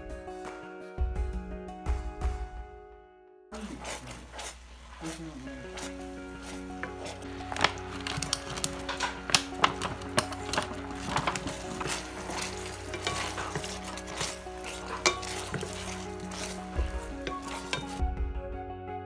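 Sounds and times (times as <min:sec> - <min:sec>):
soft music: 0:00.0 - 0:19.0
sauce bubbling and sizzling: 0:03.6 - 0:18.0
spatula knocking against pan: 0:05.8 - 0:18.0.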